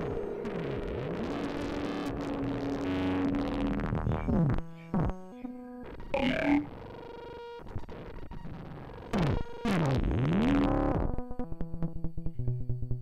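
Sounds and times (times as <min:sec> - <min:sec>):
swooping pitch glides: 0:00.0 - 0:03.8
synthesizer blips: 0:00.0 - 0:04.5, 0:06.1 - 0:06.7
held synthesizer tone: 0:06.2 - 0:06.7.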